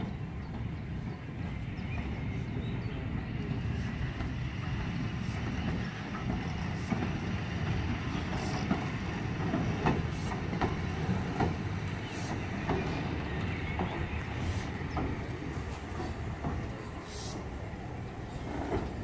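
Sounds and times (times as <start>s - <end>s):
steam locomotive rumbling: 0.0s - 19.0s
wheels clanking over points: 5.6s - 19.0s.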